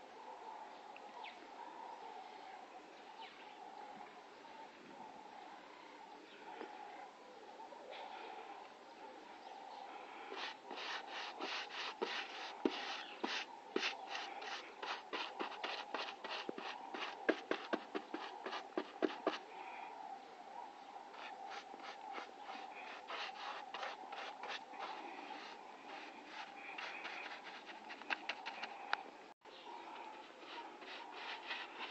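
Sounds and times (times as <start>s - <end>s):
rubbing strokes on a surface: 10.2s - 19.5s, 21.1s - 28.8s, 30.1s - 31.9s.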